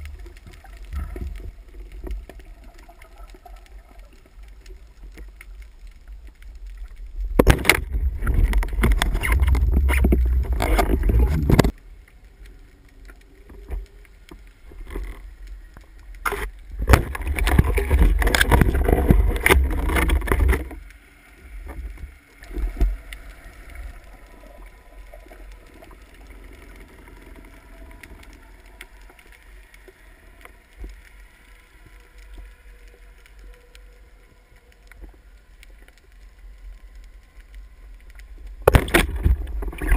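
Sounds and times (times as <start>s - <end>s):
sea hiss: 20.7s - 38.6s.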